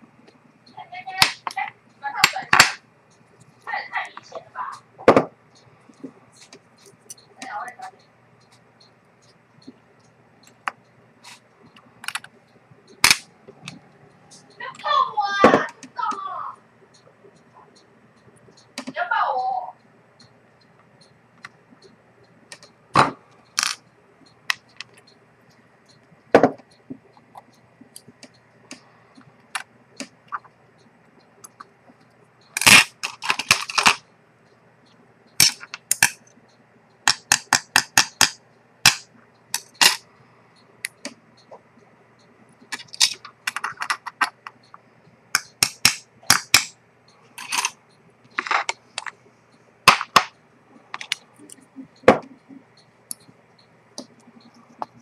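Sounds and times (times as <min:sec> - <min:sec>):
small metal tools clicking: 0:31.4 - 0:34.1, 0:35.3 - 0:36.4, 0:37.0 - 0:40.1, 0:42.7 - 0:46.8, 0:47.4 - 0:49.2.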